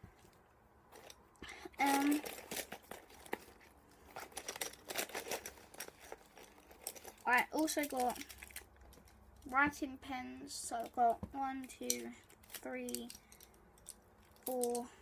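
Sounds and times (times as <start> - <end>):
packaging crinkling: 1.8 - 9.2.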